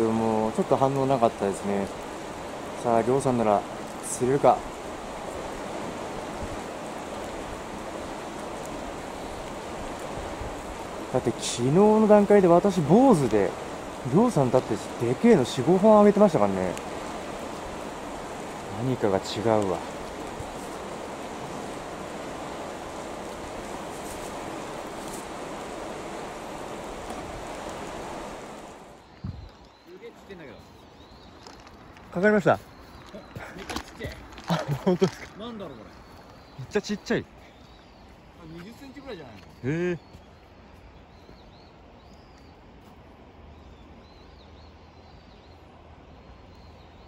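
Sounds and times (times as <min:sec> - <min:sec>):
fast-flowing river rushing: 0:00.0 - 0:29.4
small bird chirping: 0:29.0 - 0:42.6.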